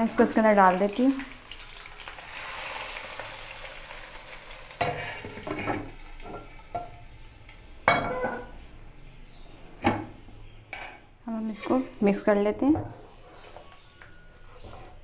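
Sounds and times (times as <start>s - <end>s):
hot oil sizzling on greens: 0.0s - 7.6s.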